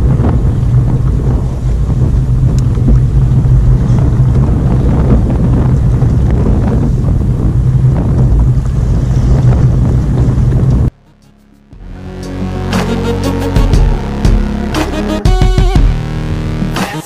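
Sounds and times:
wind buffeting microphone: 0.0 - 10.9.

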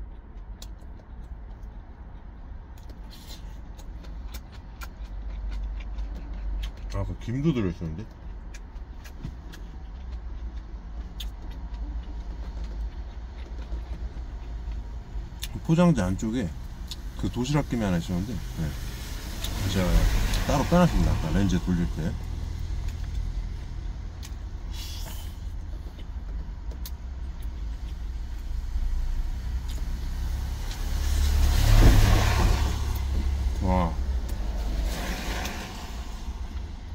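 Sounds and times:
chewing: 0.0 - 15.6, 29.6 - 29.9
truck engine rumbling: 0.0 - 36.9
faint eating clicks: 3.6 - 15.7.

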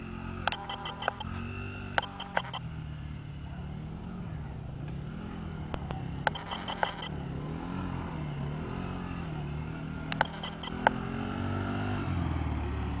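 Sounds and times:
small atv engine running: 0.0 - 13.0
sharp clicks: 0.4 - 2.7, 5.7 - 7.2, 10.1 - 11.1.

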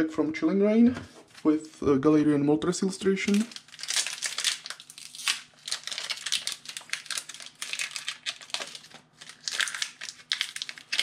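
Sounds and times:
foil wrapper crinkling: 3.2 - 11.0.

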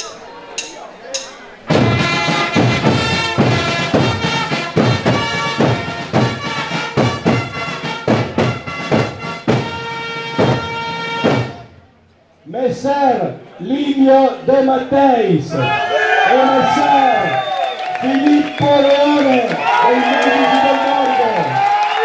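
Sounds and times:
drum beat: 0.0 - 11.7
trumpets playing a fanfare: 1.7 - 11.8.

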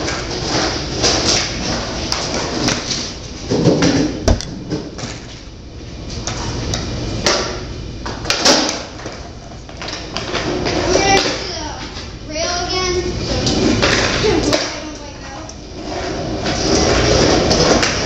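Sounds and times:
skateboard wheels rolling on concrete: 0.0 - 18.0
skateboard knocking on floor: 3.5 - 5.0.

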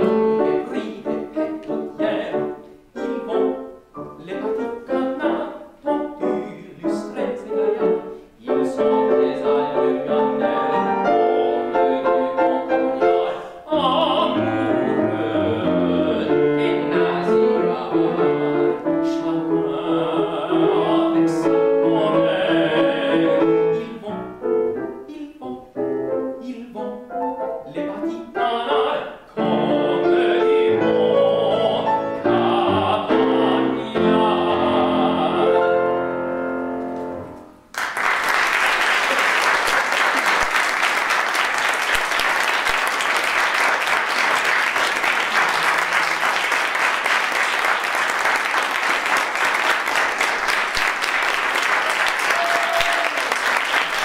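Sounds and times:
solo voice singing: 0.0 - 36.1
piano accompaniment: 0.0 - 38.8
audience applause: 37.7 - 54.0.

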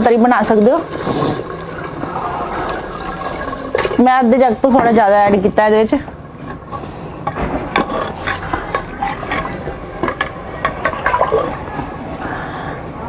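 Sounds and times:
liquid sloshing: 0.0 - 5.0, 6.1 - 12.1.

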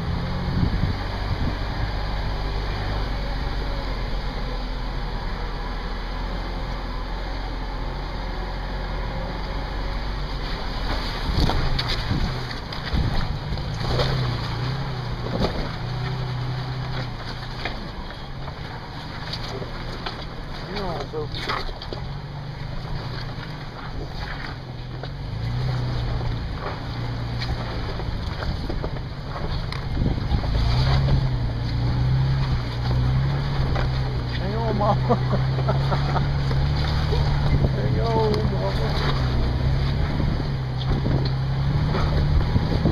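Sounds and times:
wind buffeting microphone: 0.0 - 2.1, 11.2 - 13.7, 27.8 - 32.7, 37.1 - 42.9
vehicle engine running low: 0.0 - 42.9
knocks and clatters over rocks: 10.4 - 42.9.

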